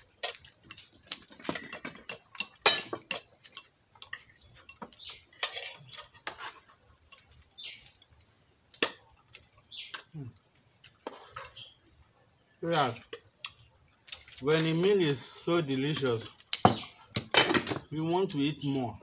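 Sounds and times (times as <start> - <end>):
metal spoons clinking on plates: 0.2 - 7.4, 15.9 - 17.8.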